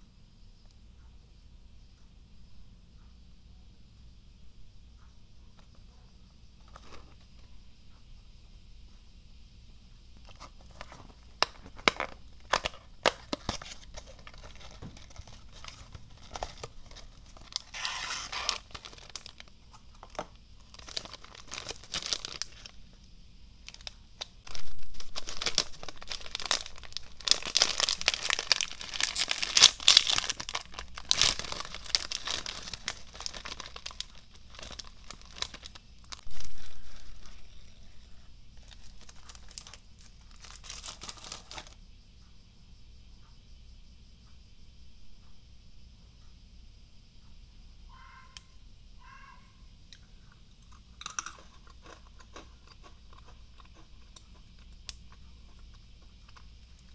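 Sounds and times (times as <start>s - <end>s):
foil pouch crinkling and tearing: 10.3s - 22.8s, 23.6s - 41.8s.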